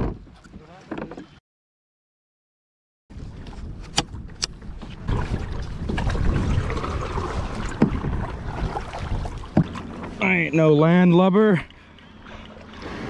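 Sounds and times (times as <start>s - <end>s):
wind buffeting microphone: 3.1s - 10.0s
water splashing around kayak: 3.1s - 13.0s.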